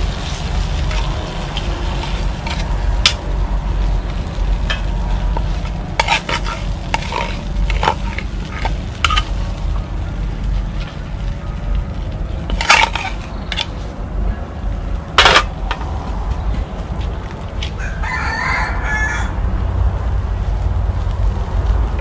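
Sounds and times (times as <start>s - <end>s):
steady low rumble: 0.0s - 22.0s
rooster crowing: 17.7s - 19.7s.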